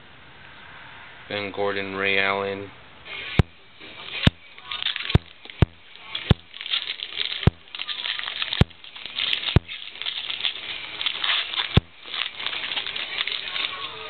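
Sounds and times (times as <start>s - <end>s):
cards rustling and sliding: 3.1s - 14.0s.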